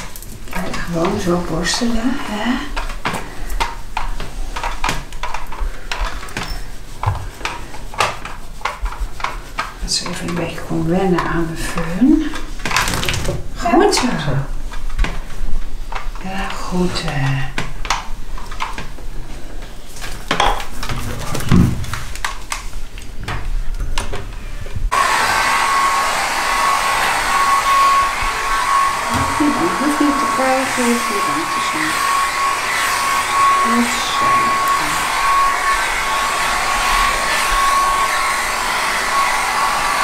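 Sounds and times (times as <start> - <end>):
hair dryer running: 0.0 - 3.8, 24.9 - 40.0.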